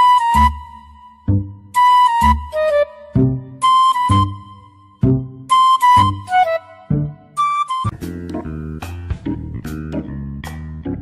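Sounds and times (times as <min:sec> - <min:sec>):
whistle-like held melody: 0:00.0 - 0:08.2
looping music with bass hits: 0:05.0 - 0:11.0.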